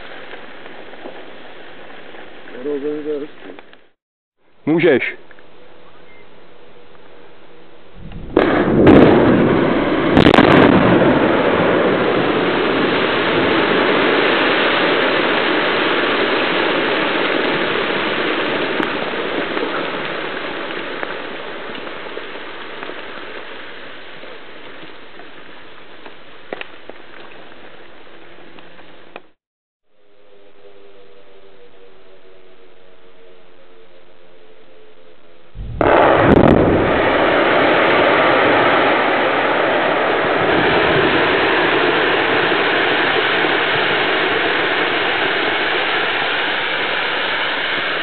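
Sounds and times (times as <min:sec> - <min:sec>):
blast detonations: 0:08.0 - 0:20.0, 0:35.6 - 0:44.5
rock tumbling rumble: 0:08.0 - 0:29.3, 0:35.5 - 0:46.1.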